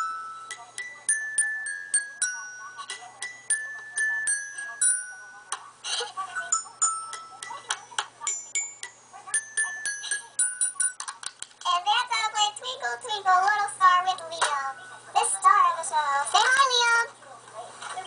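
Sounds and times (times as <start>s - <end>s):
toy xylophone notes: 0.0s - 5.6s, 6.4s - 11.1s.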